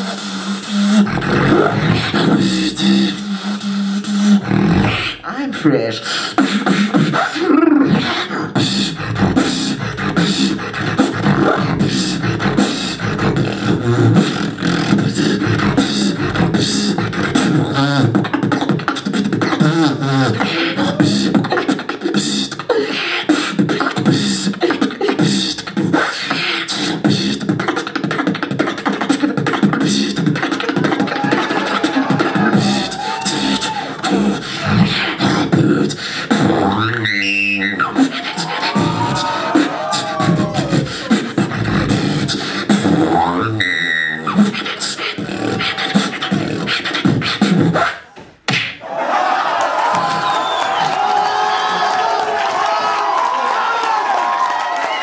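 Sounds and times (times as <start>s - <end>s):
beatboxing into microphone: 0.0s - 48.8s.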